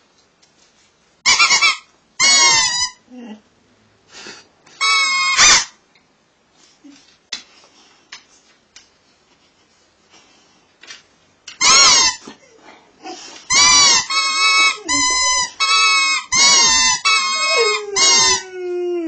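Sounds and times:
dog howling: 17.2 - 19.0.

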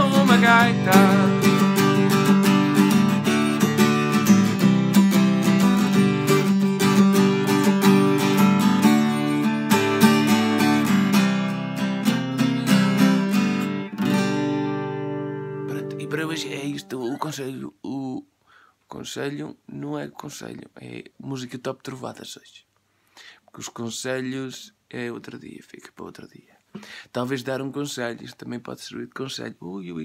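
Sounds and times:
acoustic guitar strumming: 0.0 - 17.6.

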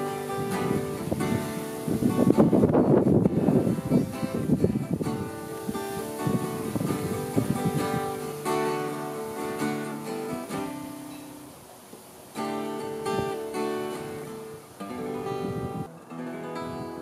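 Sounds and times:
acoustic guitar strummed chords: 0.0 - 11.6, 12.3 - 17.0.

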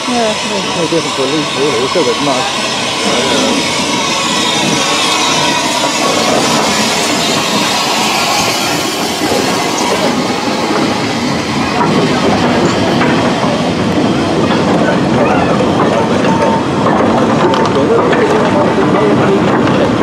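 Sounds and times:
steam hissing from locomotive: 0.0 - 14.7
wagon wheels clattering over rail joints: 1.4 - 20.0.

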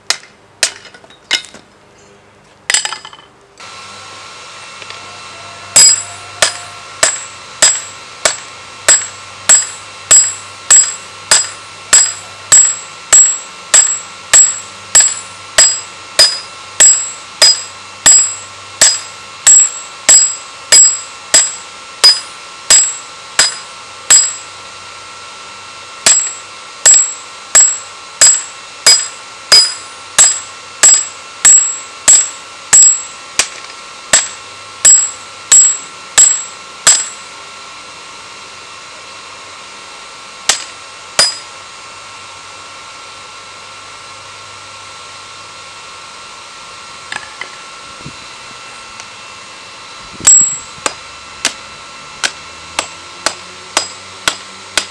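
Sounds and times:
hammer striking hot steel on anvil: 0.0 - 1.6, 2.7 - 3.3, 5.7 - 24.6, 26.0 - 37.3, 40.4 - 41.6, 50.2 - 51.6, 52.2 - 54.9.

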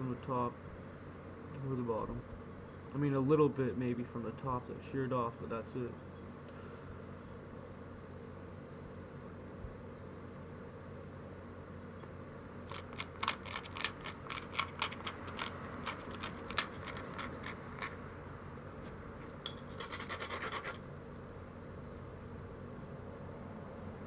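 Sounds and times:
stone scraping stone edge: 12.7 - 18.0.

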